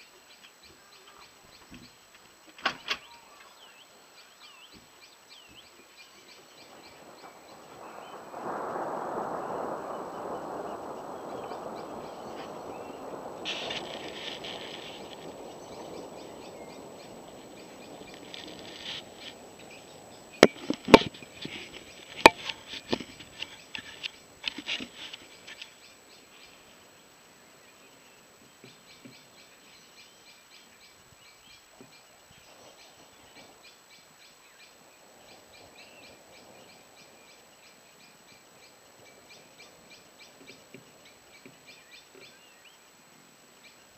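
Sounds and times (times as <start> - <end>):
rolling thunder: 5.6 - 28.1, 32.1 - 41.8
faint rapid high ticking: 5.7 - 26.8.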